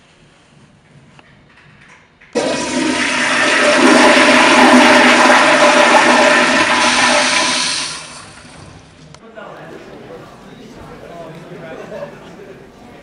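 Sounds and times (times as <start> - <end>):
toilet flushing: 2.4 - 9.0.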